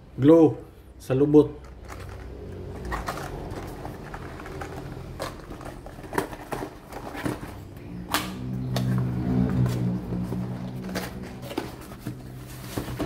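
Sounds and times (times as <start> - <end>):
plastic packaging rustling: 1.6 - 7.8, 9.8 - 13.0.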